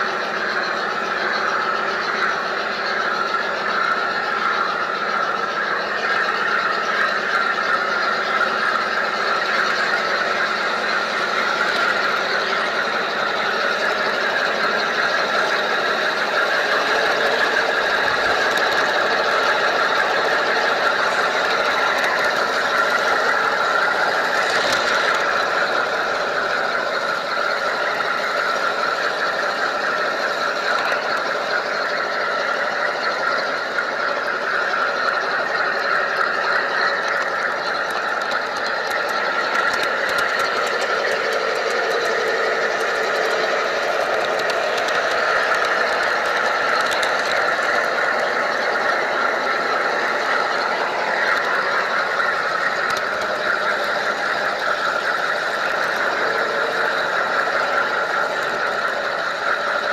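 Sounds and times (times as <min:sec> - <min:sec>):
model train motor running: 0:00.0 - 0:59.9
wheels rolling on track: 0:00.0 - 0:59.9.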